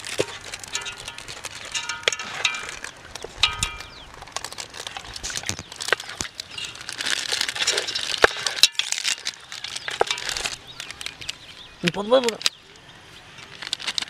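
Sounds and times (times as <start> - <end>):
clicks and knocks against pot: 0.0 - 6.8
wet squishing of mixing by hand: 0.0 - 12.5.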